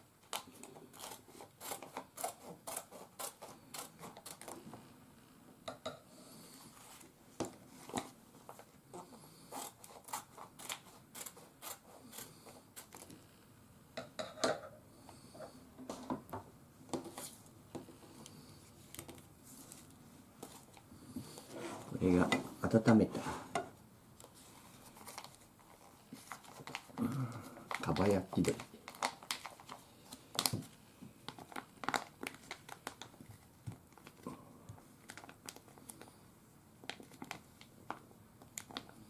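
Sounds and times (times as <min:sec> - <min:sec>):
scissors snipping plastic pouch: 0:00.3 - 0:04.6, 0:09.5 - 0:13.1
packaging crinkling: 0:24.8 - 0:27.0, 0:27.7 - 0:34.2, 0:35.0 - 0:36.1.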